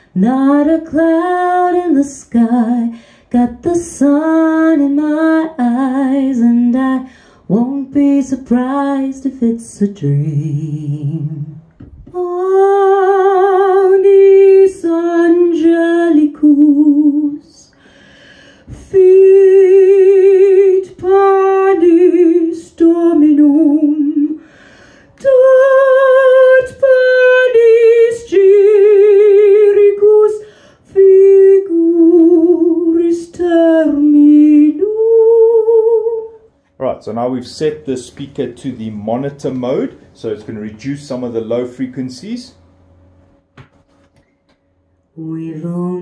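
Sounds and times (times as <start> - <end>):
woman singing through speaker: 0.2 - 17.7, 18.8 - 24.4, 25.2 - 36.4, 45.2 - 46.0.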